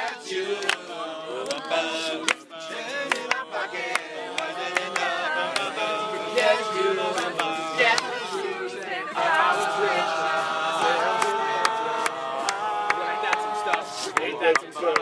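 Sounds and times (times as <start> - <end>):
hand claps: 0.0 - 5.7, 7.1 - 8.1, 11.1 - 15.0
men singing harmonies: 0.0 - 15.0.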